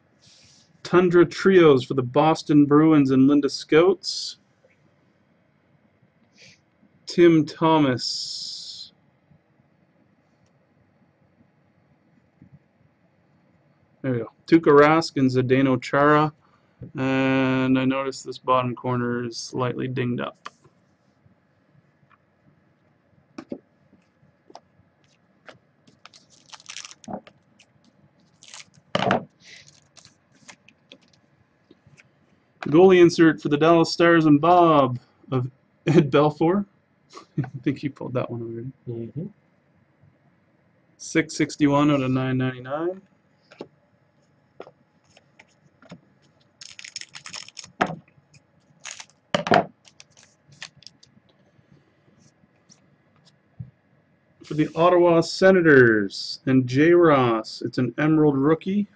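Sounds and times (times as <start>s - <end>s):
trading cards clicking and rustling: 25.4s - 27.7s, 46.6s - 48.0s, 48.8s - 51.1s
wrapper crinkling: 25.9s - 31.2s, 46.6s - 48.0s, 48.7s - 51.1s
scissors cutting wrapper: 26.0s - 27.1s, 28.3s - 28.8s, 29.6s - 31.2s, 46.6s - 47.8s, 48.8s - 49.1s, 49.8s - 51.0s.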